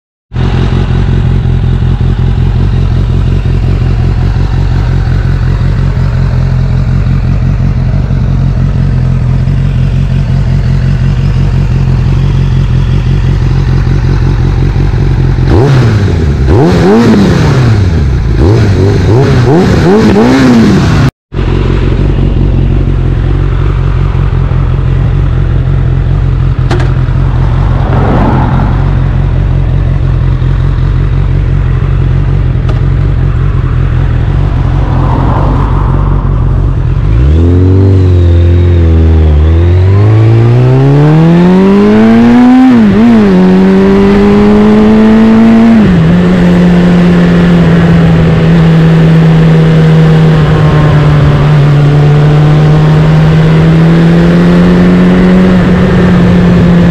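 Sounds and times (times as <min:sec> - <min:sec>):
motorcycle engine revving through gears: 0:00.3 - 0:56.9
motorcycle engine idling: 0:00.4 - 0:16.6, 0:21.4 - 0:37.3.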